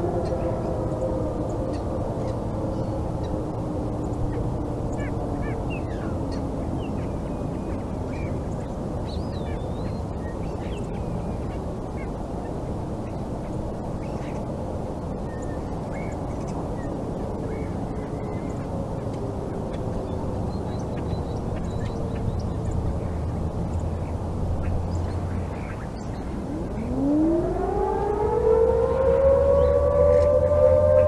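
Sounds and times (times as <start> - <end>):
distant siren tone: 0.0 - 7.9, 25.0 - 31.0
low background rumble: 0.0 - 28.1
birds calling and chirping: 0.0 - 31.0.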